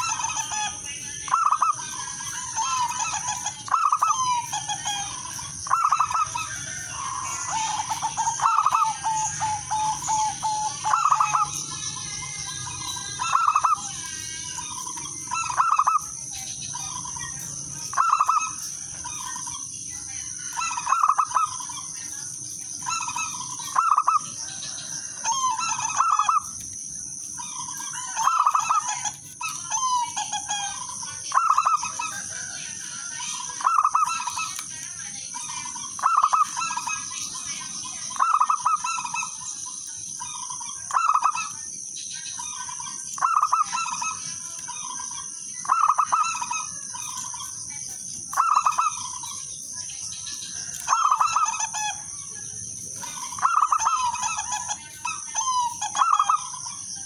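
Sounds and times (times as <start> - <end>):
dove cooing: 0.0 - 16.2, 16.8 - 19.6, 20.3 - 22.0, 22.8 - 26.6, 27.4 - 34.6, 35.8 - 37.2, 38.1 - 39.4, 45.6 - 47.4, 48.3 - 49.4, 50.9 - 52.0, 52.9 - 56.8.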